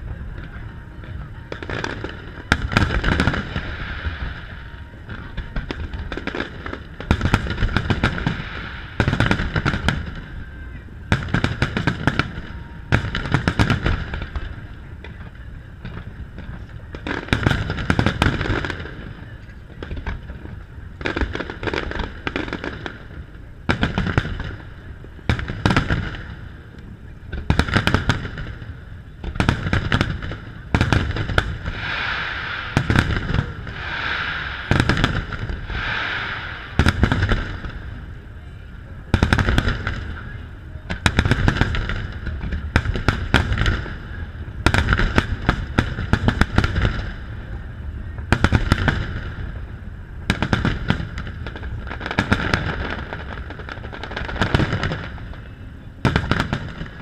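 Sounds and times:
fireworks bursting: 0.0 - 57.0
low rumble: 31.2 - 39.2.

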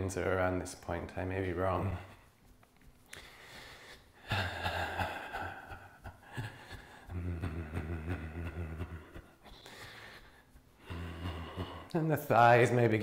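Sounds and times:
man humming: 4.2 - 9.8, 10.8 - 12.1
man sighing: 4.2 - 12.0.

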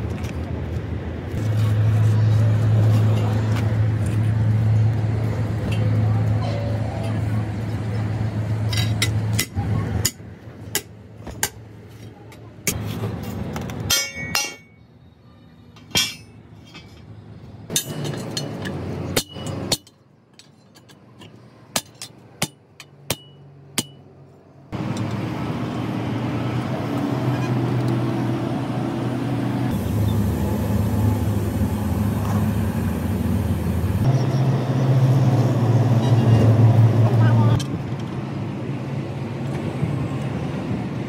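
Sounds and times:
truck engine running: 24.8 - 41.0.

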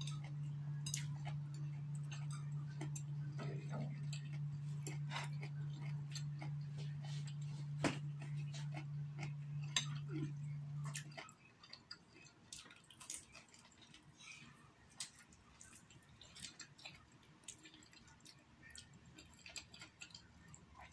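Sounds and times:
low hum: 0.0 - 12.4
chewing food: 0.0 - 20.9.

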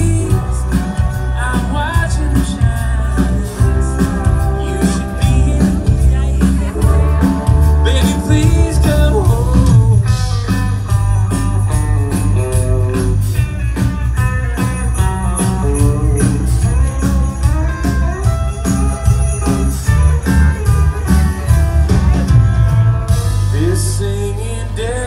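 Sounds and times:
live band playing festive music: 0.0 - 25.0
jingle bells shaken: 10.9 - 22.3.

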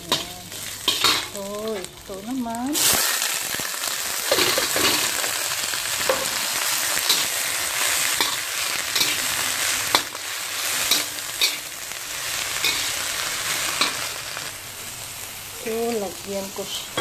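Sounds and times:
metal spatula scraping wok: 0.0 - 1.9, 4.2 - 14.2
cabbage sizzling in oil: 0.0 - 17.0.

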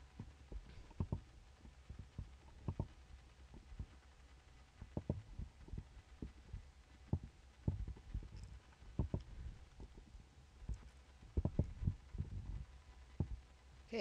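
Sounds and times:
faint hum: 0.0 - 14.0
dull thumps of desk bumps: 4.8 - 6.4, 7.1 - 8.3, 9.0 - 9.2, 11.4 - 12.6.

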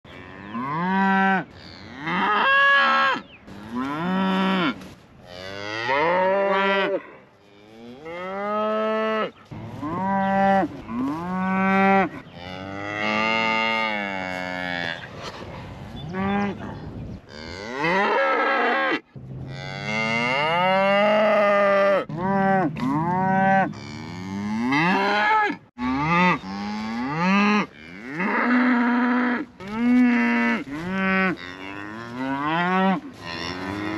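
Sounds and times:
cattle mooing: 17.3 - 33.9.

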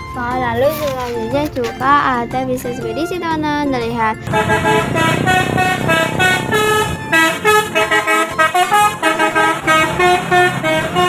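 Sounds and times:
road noise: 0.0 - 11.0
multi-tone air horn melody: 4.3 - 11.0.

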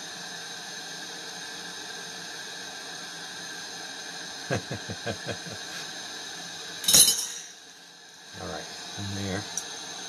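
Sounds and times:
torch flame hissing: 0.0 - 10.0.

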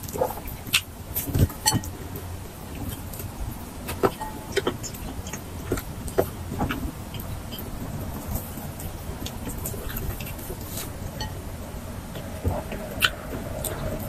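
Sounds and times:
low steady hum: 0.0 - 14.0
person chewing and lip-smacking: 12.2 - 14.0.

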